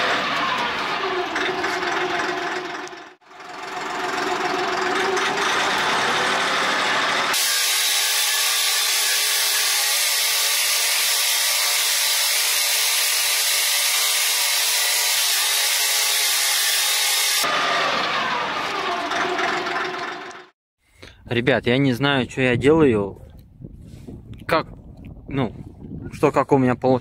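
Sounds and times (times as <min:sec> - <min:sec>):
tractor engine running under load: 0:00.0 - 0:07.4, 0:17.5 - 0:20.5.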